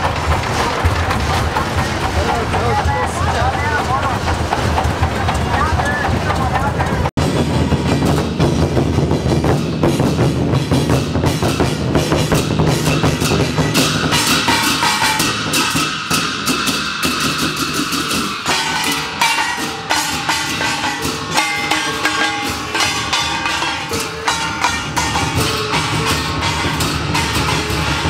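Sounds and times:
barrel drum beating: 0:00.0 - 0:28.0
hand cymbals clashing: 0:07.2 - 0:28.0.

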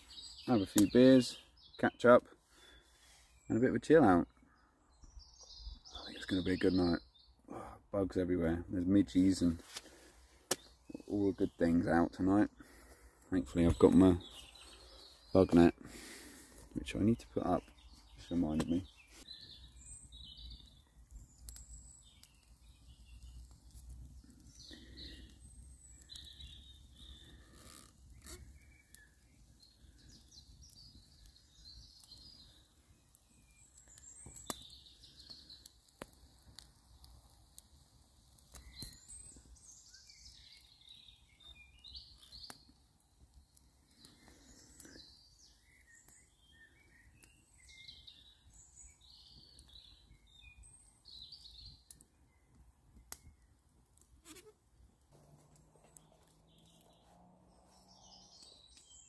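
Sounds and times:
faint birdsong: 0:00.0 - 0:59.0.

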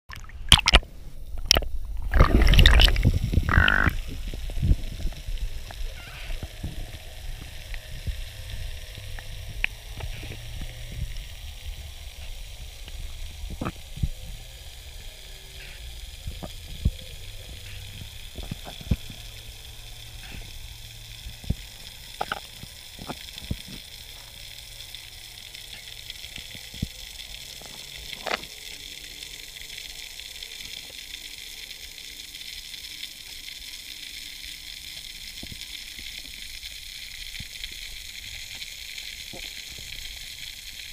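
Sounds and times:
underwater crackling hiss: 0:00.5 - 0:40.9.

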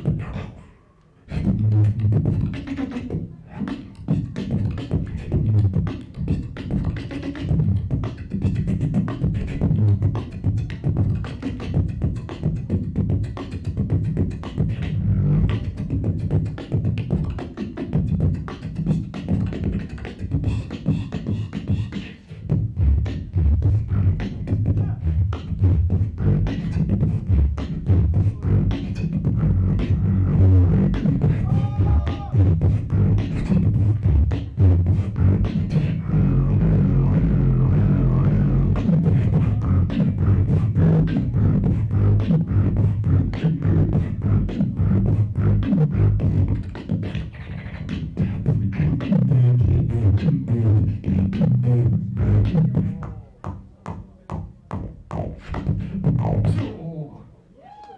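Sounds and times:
beatboxing into a microphone: 0:00.0 - 0:57.9
deep bass tones: 0:01.3 - 0:03.4, 0:04.0 - 0:21.1, 0:22.4 - 0:57.2.

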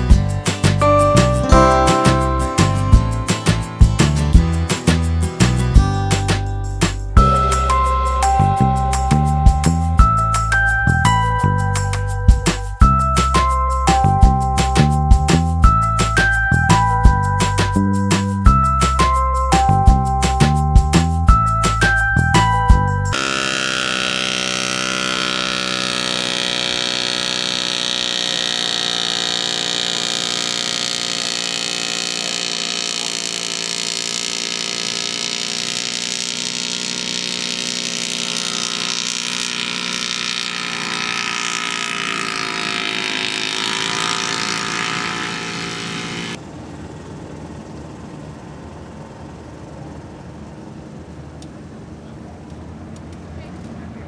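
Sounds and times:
small aircraft engine: 0:00.0 - 0:14.0, 0:23.1 - 0:54.0
outdoor background noise: 0:23.1 - 0:54.0.

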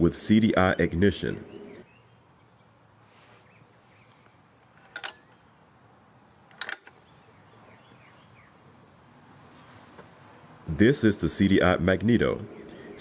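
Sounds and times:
faint bird chirps: 0:01.2 - 0:04.4, 0:06.9 - 0:08.6, 0:12.4 - 0:13.0
recoil starter handle clicks: 0:06.5 - 0:07.0.

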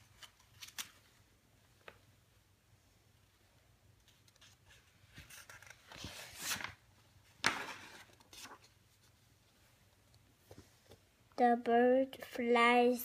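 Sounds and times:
book pages rustling: 0:00.0 - 0:01.2, 0:04.0 - 0:09.5.

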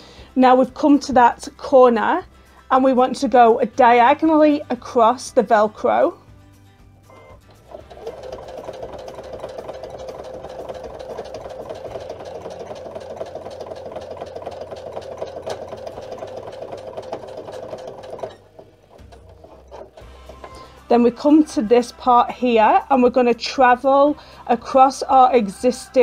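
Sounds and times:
sewing machine stitching: 0:07.1 - 0:21.6.

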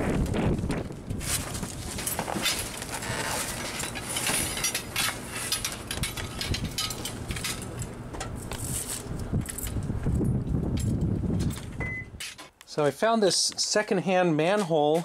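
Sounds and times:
cardboard and plastic bags rustling: 0:00.1 - 0:06.0.

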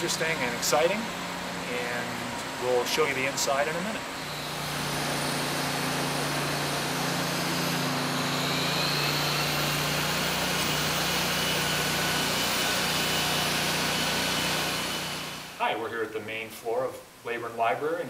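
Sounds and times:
machinery humming: 0:00.0 - 0:15.6.

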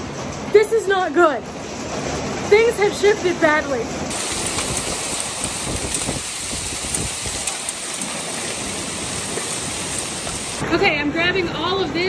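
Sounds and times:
heavy rain and hail falling: 0:01.6 - 0:11.2
hailstones ticking: 0:04.1 - 0:10.6.

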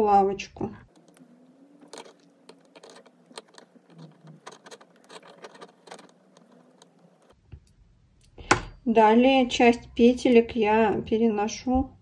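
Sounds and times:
knitting needles clicking on metal pin: 0:01.8 - 0:07.4.

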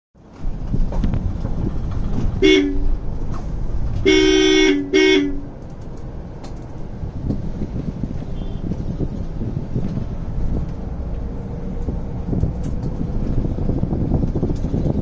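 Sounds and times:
road and wind rumble: 0:00.2 - 0:15.0
vehicle horn honking: 0:02.4 - 0:03.0, 0:04.0 - 0:05.5, 0:08.3 - 0:08.8.

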